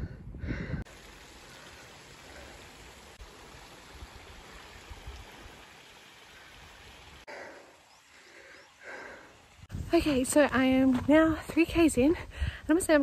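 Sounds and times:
wind buffeting microphone: 0.0s - 0.9s, 9.5s - 13.0s
creek water rushing over rocks: 0.9s - 7.3s.

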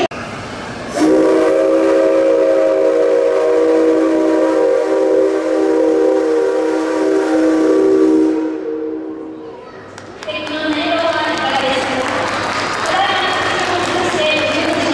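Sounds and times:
steam locomotive whistle: 0.9s - 9.4s.

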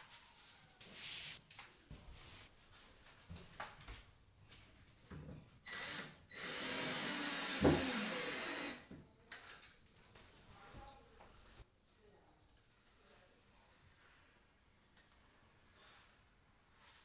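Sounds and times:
cordless drill motor whining: 5.7s - 8.8s.

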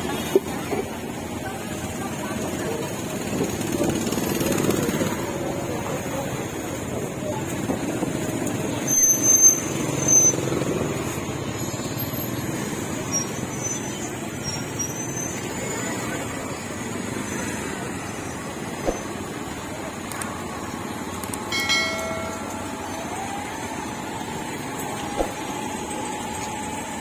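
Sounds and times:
motor traffic: 0.0s - 27.0s
short high squeals: 8.7s - 10.7s, 13.0s - 16.1s.

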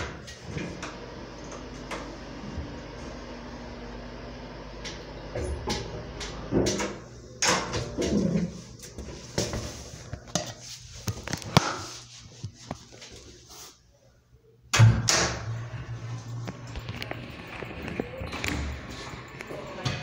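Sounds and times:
low steady hum: 14.1s - 20.0s
elevator door clunks: 14.8s - 17.3s.

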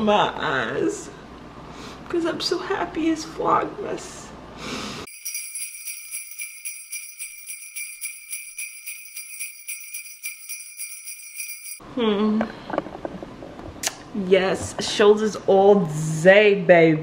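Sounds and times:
jingle bells shaken: 5.1s - 11.8s.

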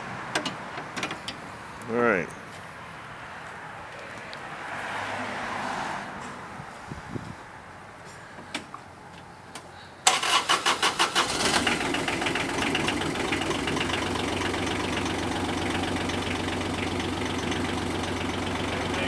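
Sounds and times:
diesel engine cranking and idling: 7.7s - 19.0s.

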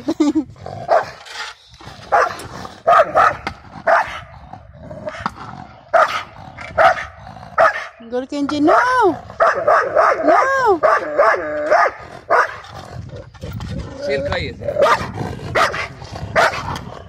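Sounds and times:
dog barking: 2.1s - 2.3s, 2.9s - 4.2s, 6.0s - 6.2s, 6.8s - 7.9s, 8.7s - 12.6s, 14.8s - 16.7s.

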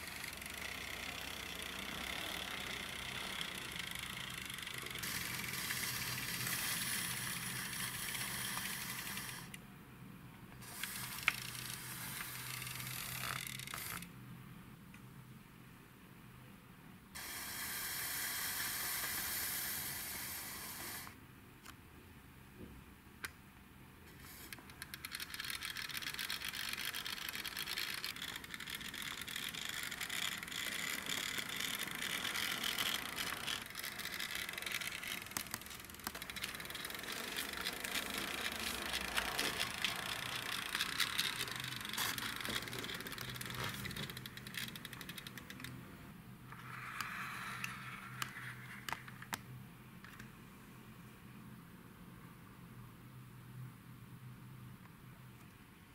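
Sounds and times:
toy car wheels rolling on wood: 0.0s - 9.6s, 10.6s - 14.1s, 24.2s - 45.8s, 46.5s - 49.4s.

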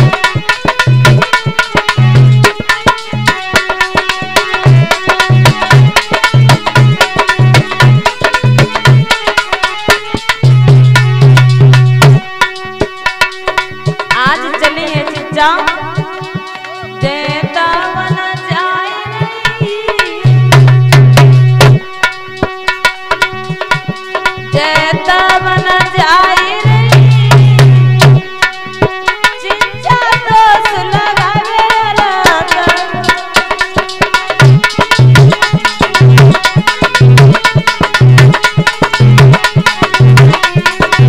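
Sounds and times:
fast hand-drum rhythm: 0.0s - 41.0s
harmonium melody: 0.0s - 41.0s.

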